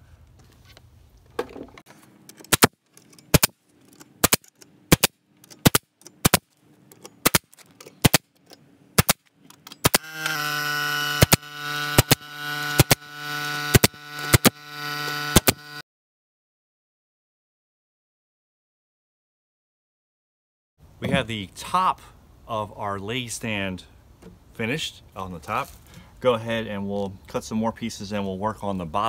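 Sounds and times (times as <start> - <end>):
nail gun shots into wood: 2.5 - 3.6, 4.2 - 6.5, 7.2 - 8.3, 9.0 - 10.5, 11.1 - 14.6
air compressor humming: 9.8 - 15.8.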